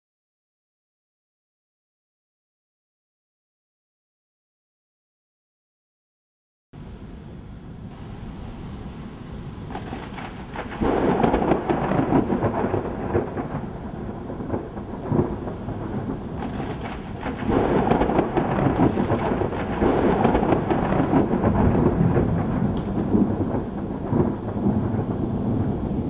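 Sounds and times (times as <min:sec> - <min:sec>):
thunder rumbling: 0:06.8 - 0:26.0.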